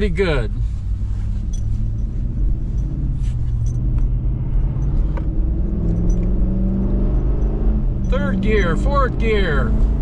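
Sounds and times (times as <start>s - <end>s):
road rumble: 0.0s - 10.0s
truck engine accelerating: 0.7s - 10.0s.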